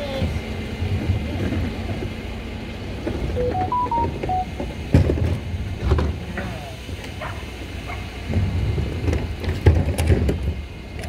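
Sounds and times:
electronic beeps: 3.4s - 4.6s.

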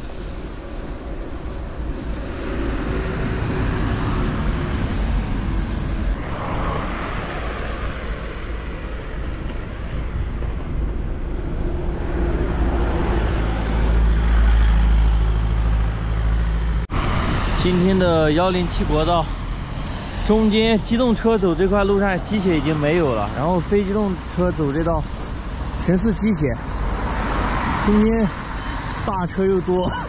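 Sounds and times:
road traffic passing: 0.0s - 30.0s.

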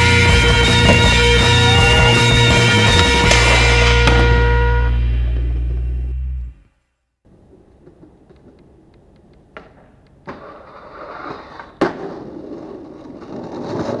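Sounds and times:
skateboard landing smack: 0.8s - 1.8s, 2.9s - 4.4s, 9.5s - 10.6s
skateboard wheels rolling on pavement: 7.3s - 14.0s.

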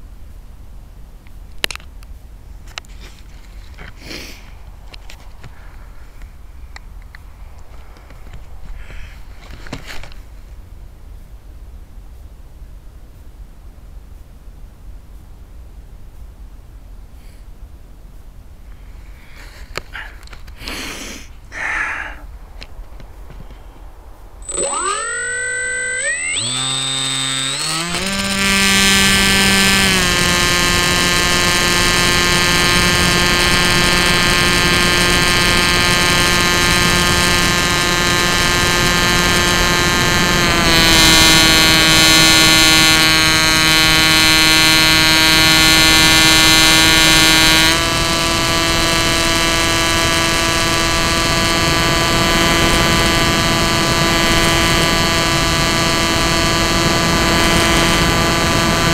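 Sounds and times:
electric motor and propeller whine: 24.4s - 58.9s.

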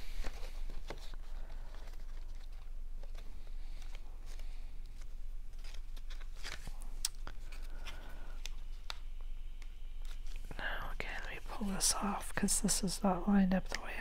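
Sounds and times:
paper rustling and crinkling: 0.0s - 9.0s
steady low hum: 0.0s - 14.0s.

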